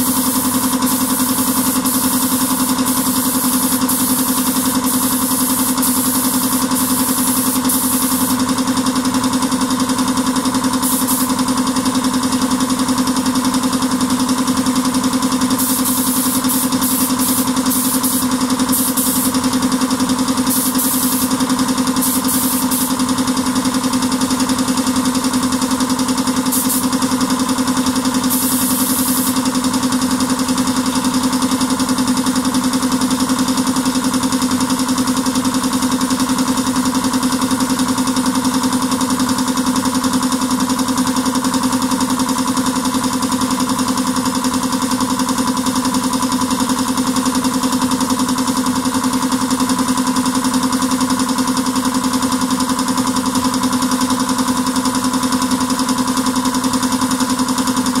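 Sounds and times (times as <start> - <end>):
spray gun hissing: 0.0 - 8.5, 10.8 - 11.4, 15.5 - 19.6, 20.4 - 23.1, 26.5 - 27.1, 28.2 - 29.4.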